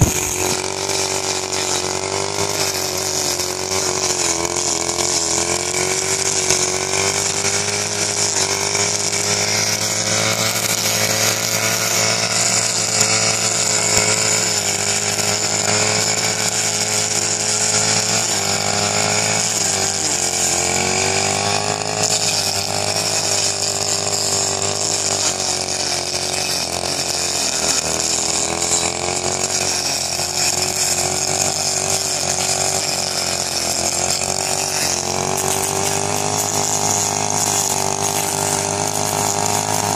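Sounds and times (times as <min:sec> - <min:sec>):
cutting head sweeping stubble: 0:00.0 - 0:01.6
brush cutter engine whining: 0:00.0 - 0:39.9.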